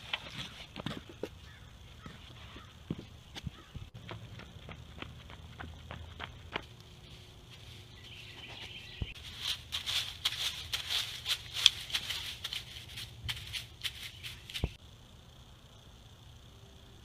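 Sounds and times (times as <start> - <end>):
sticks scraping in dry mulch: 8.3 - 14.8.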